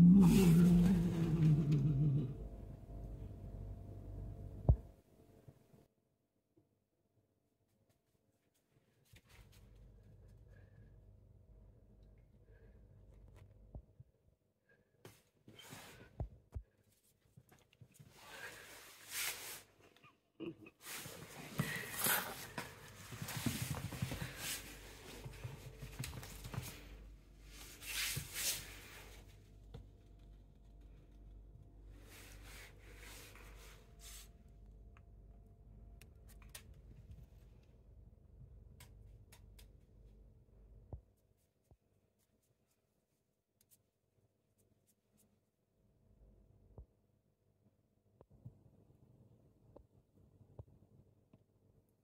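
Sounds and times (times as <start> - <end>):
cat growling: 0.0 - 2.6.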